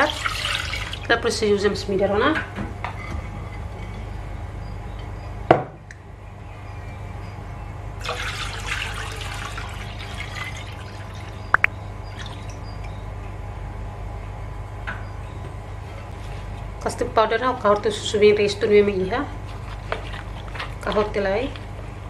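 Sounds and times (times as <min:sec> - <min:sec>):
milk pouring into saucepan: 0:00.0 - 0:01.1, 0:08.0 - 0:11.3
steady low hum: 0:00.0 - 0:22.0.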